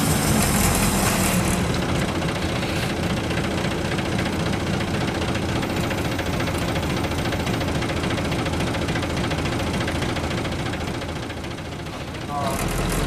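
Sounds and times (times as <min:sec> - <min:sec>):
hiss of rolling tyres: 0:00.0 - 0:04.4
bus diesel engine idling: 0:00.0 - 0:13.0.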